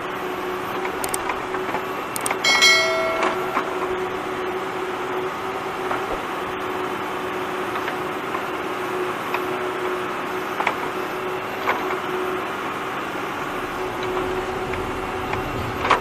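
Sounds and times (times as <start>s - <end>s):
diesel engine running: 10.9s - 16.0s.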